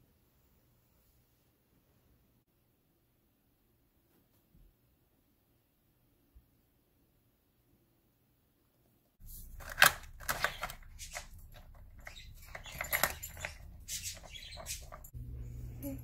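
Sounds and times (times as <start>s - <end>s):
plastic puzzle toy clacking: 9.5s - 15.0s
low hum: 15.1s - 16.0s.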